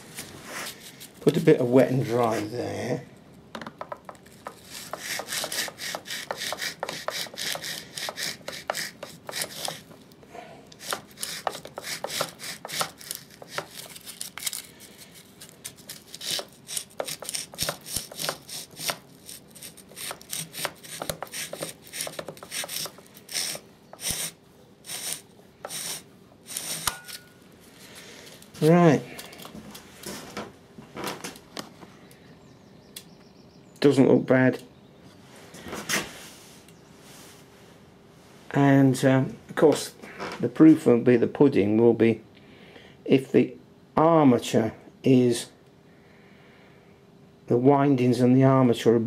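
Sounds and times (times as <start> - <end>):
abrasive paper scratching metal: 4.3 - 10.0, 10.8 - 27.2.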